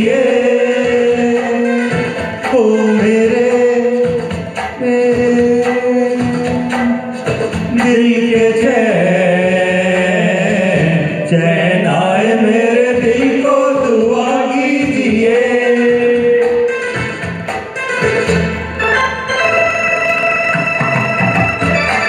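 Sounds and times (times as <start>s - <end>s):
men singing into microphones: 0.0s - 17.1s
regular beats: 19.9s - 22.0s.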